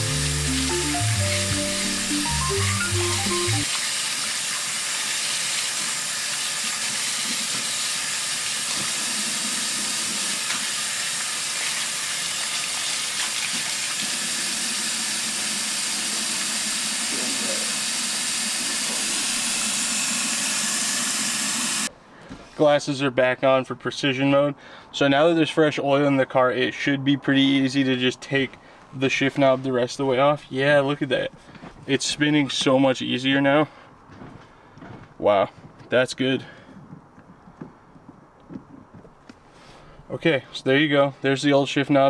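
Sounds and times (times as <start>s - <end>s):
music: 0.0s - 3.7s
water running from a tap: 0.0s - 21.9s.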